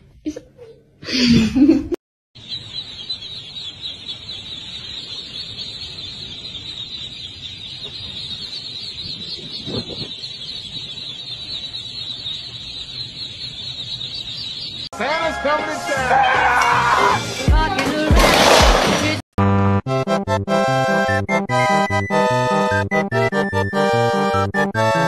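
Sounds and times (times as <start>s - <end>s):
ducklings peeping: 2.4s - 18.0s, 20.8s - 25.0s.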